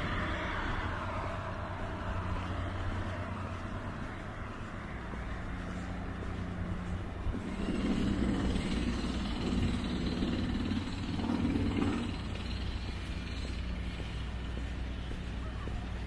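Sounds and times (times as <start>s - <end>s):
steady low hum: 0.0s - 16.0s
vehicle passing: 0.0s - 16.0s.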